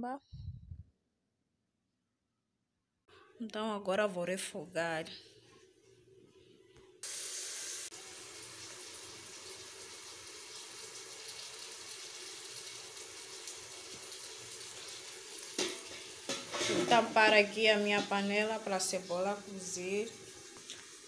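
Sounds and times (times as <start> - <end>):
onions sizzling in hot oil: 7.0 - 21.0.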